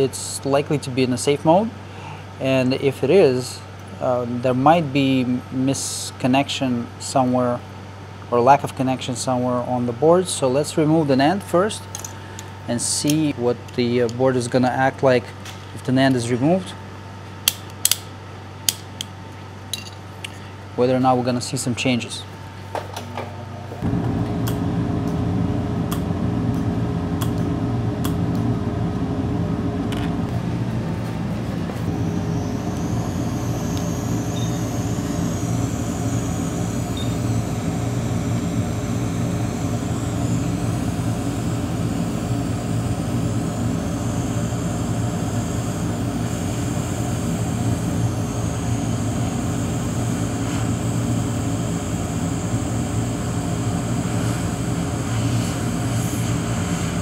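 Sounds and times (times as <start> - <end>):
hot-air station blowing: 23.7 - 57.0.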